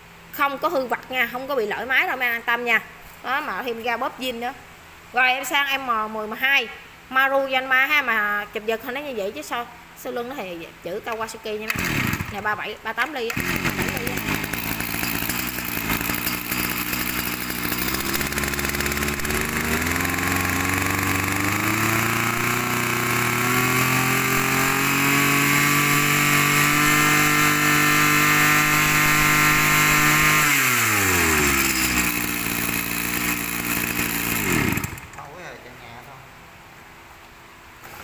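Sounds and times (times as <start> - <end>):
brush cutter engine revving: 11.1 - 35.4.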